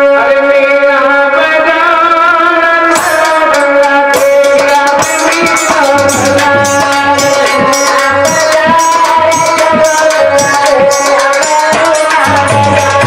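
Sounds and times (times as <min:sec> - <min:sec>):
harmonium playing melody: 0:02.6 - 0:13.0
hand drum beat: 0:03.0 - 0:13.0.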